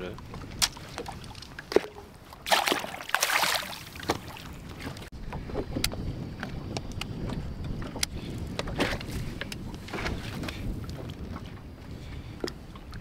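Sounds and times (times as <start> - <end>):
waves lapping against boat hull: 0.0 - 13.0
wind on microphone: 0.0 - 13.0
fish splashing into water: 1.8 - 4.5.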